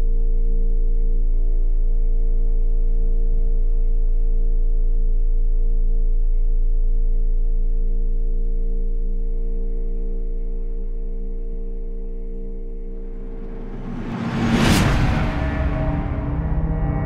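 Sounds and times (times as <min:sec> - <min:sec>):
ambient horror drone: 0:13.0 - 0:17.0.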